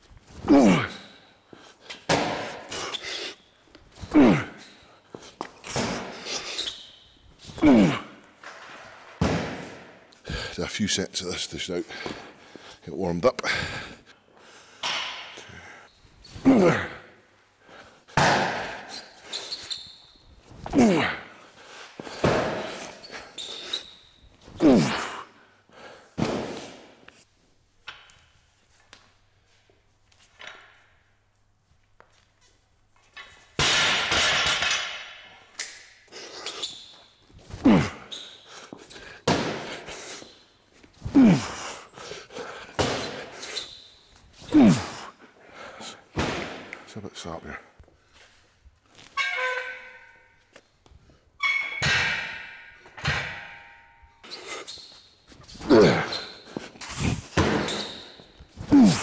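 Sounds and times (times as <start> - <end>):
man grunting: 0.4 - 1.1, 4.0 - 4.6, 7.5 - 8.2, 16.4 - 17.2, 20.7 - 21.4, 24.6 - 25.3, 37.5 - 38.1, 41.0 - 41.8, 44.4 - 45.2, 55.6 - 56.2, 58.6 - 59.0
man shouting with effort: 0.5 - 1.0, 58.6 - 59.0
sandbag landing with echoing thud: 9.2 - 10.0.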